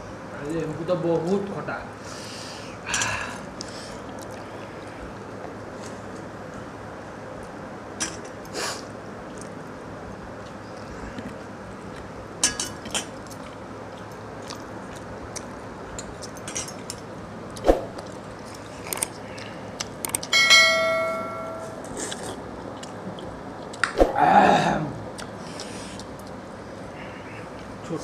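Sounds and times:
chewing: 4.1s - 5.0s, 12.9s - 17.0s, 21.9s - 23.8s
bell-like ding: 20.3s - 21.8s.

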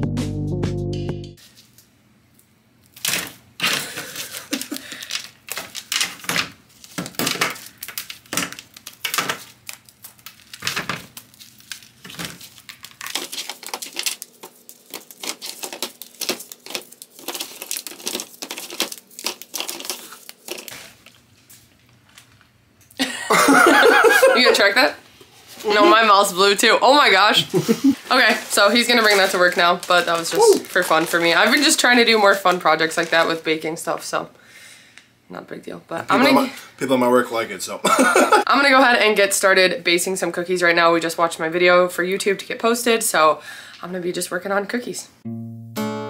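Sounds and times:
candy bark snapping and cracking: 2.8s - 3.4s, 4.5s - 21.1s
pretzels crunching: 2.8s - 22.6s, 28.4s - 33.4s
parchment paper crinkling: 2.9s - 22.6s, 28.0s - 33.5s.

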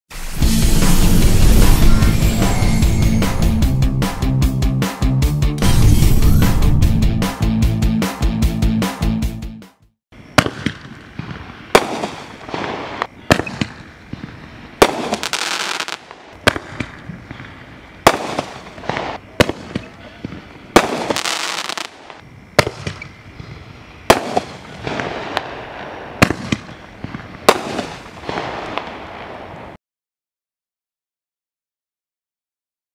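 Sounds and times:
firework shots: 10.2s - 29.8s
hissing crackling firework burst: 10.2s - 29.8s.

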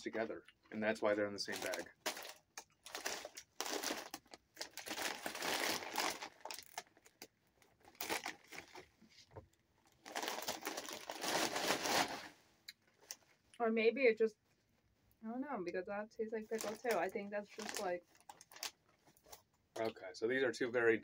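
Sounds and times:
chip bag crinkling: 1.5s - 9.0s, 9.8s - 13.4s, 16.5s - 19.4s.

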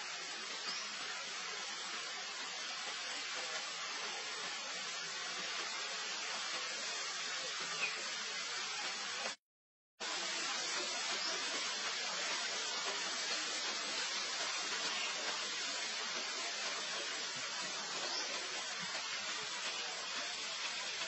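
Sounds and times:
steady hiss: 0.0s - 9.4s, 10.0s - 21.0s.

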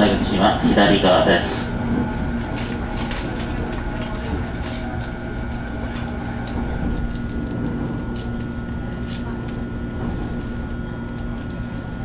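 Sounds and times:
train running along track: 0.0s - 12.0s.

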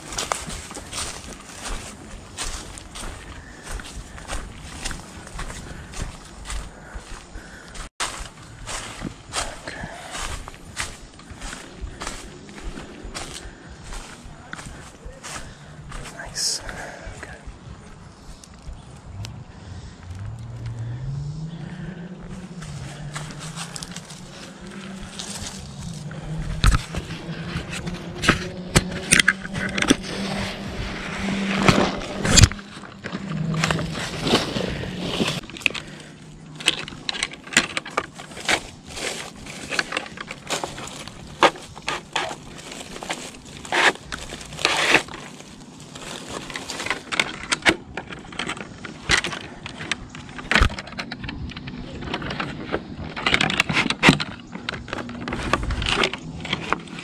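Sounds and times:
crunching in dry leaves: 0.0s - 57.0s
fishing gear clicking and scraping: 21.6s - 57.0s.

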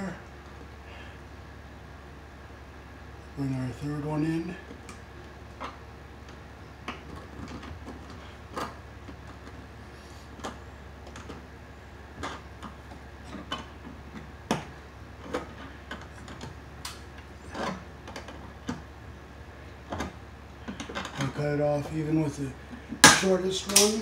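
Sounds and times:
steady low hum: 0.0s - 24.0s
pliers clicking on copper wires: 23.0s - 24.0s.

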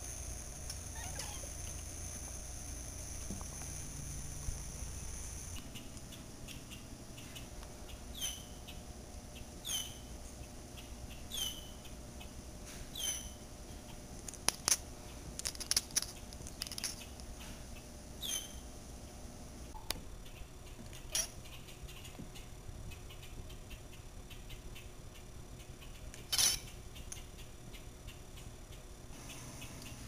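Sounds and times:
bird whistling: 8.1s - 8.6s, 9.6s - 10.1s, 11.3s - 11.8s, 13.0s - 13.4s, 18.2s - 18.6s
cat chattering clicks: 20.3s - 28.5s.

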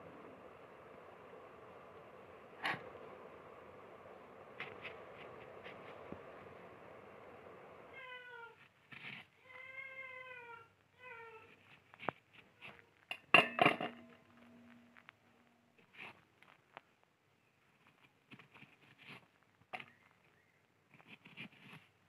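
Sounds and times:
cat meowing: 7.9s - 8.6s.

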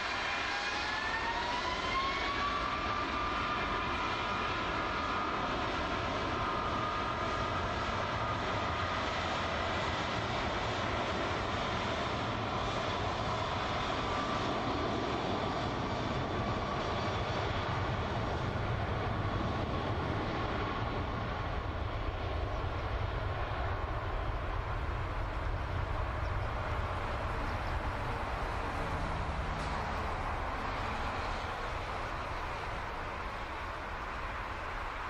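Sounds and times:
jet engines droning: 0.0s - 35.0s.

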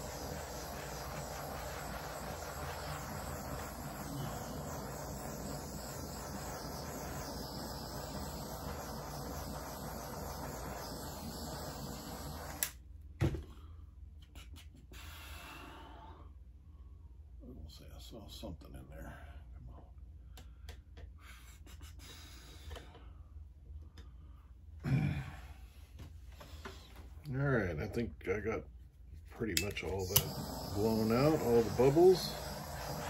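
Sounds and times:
butane torch flame hissing: 0.0s - 12.8s, 29.6s - 33.0s
torch click: 0.0s - 12.8s, 29.6s - 33.0s.

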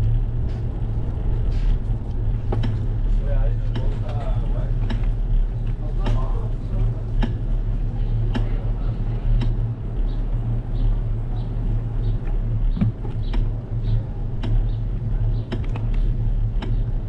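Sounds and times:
rattling clicks from bumps: 0.0s - 7.5s
bicycle tyres and wind rumble: 0.0s - 17.0s.

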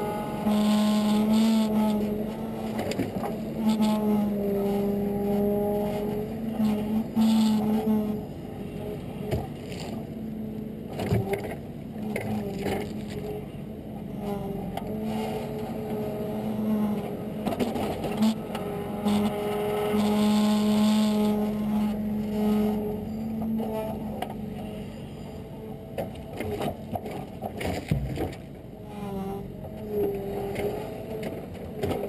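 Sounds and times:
short knocks: 26.9s - 28.5s.

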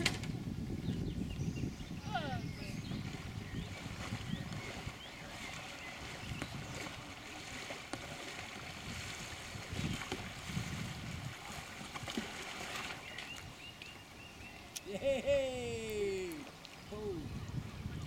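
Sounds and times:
paddle blade slapping water: 0.0s - 15.0s, 15.9s - 18.0s
kayak paddle splashing water: 2.7s - 14.7s, 16.0s - 17.0s.

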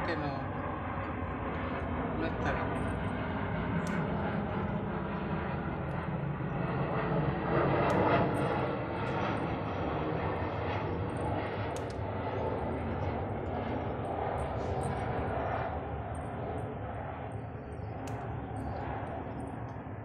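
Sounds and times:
faint clicks: 11.2s - 12.0s, 18.0s - 19.8s.

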